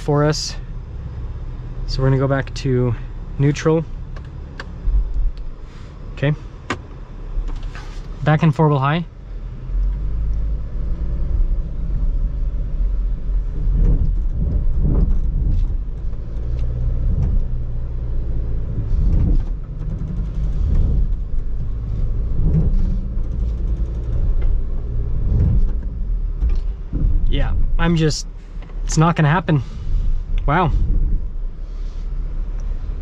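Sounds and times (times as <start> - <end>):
vehicle engine low rumble: 0.0 - 33.0
vehicle bumps: 12.8 - 33.0.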